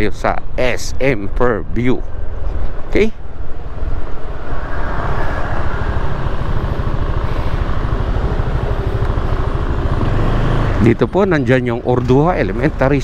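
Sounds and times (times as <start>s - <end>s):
wind and road noise: 0.0s - 13.0s
scooter engine running: 6.7s - 11.4s.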